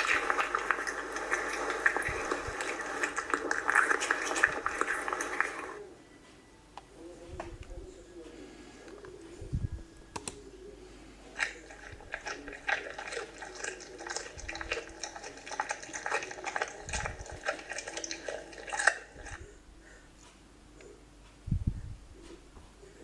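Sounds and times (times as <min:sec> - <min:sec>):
cat crunching dry kibble: 0:00.0 - 0:05.8, 0:11.3 - 0:19.4.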